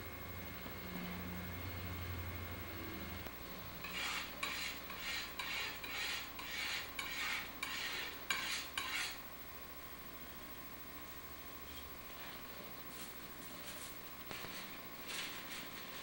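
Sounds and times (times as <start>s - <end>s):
glass muller gritty rubbing: 3.8s - 9.2s
palette knife scraping: 3.8s - 9.2s.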